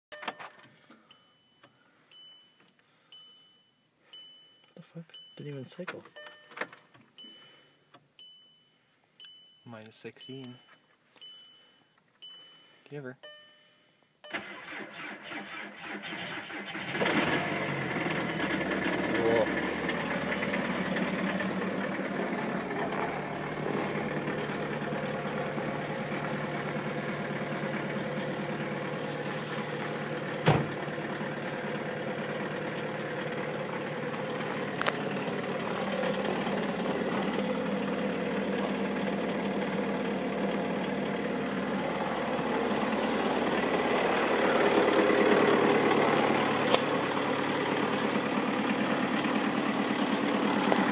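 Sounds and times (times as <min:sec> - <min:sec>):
diesel engine idling: 0:15.8 - 0:50.9
sharp thump: 0:30.4 - 0:30.8.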